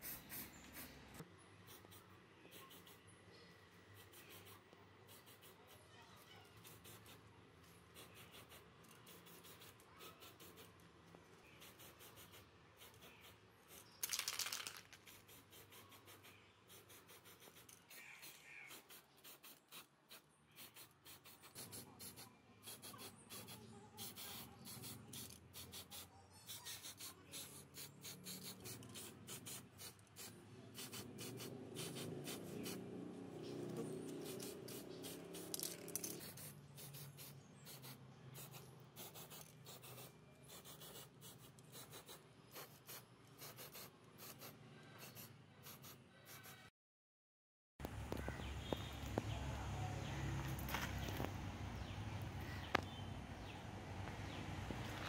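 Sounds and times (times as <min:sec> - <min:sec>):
spray paint can hissing: 0:00.0 - 0:01.0, 0:01.7 - 0:03.0, 0:04.0 - 0:05.8, 0:06.5 - 0:07.2, 0:08.0 - 0:10.7, 0:11.6 - 0:32.9, 0:34.0 - 0:46.6.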